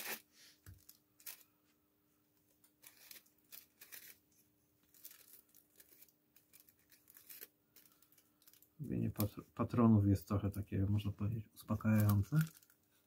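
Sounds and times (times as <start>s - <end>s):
thin paper rustling and crinkling: 2.7s - 9.4s, 11.7s - 13.0s.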